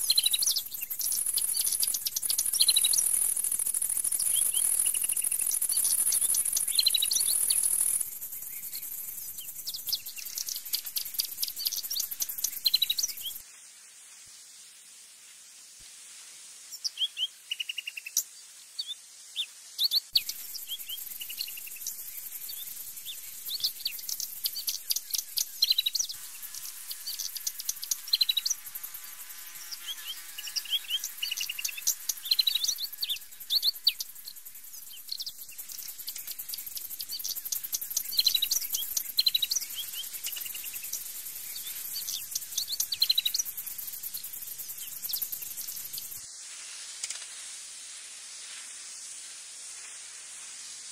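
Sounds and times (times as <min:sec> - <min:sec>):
birds chirping: 0:00.0 - 0:13.4
insect hiss: 0:00.0 - 0:50.9.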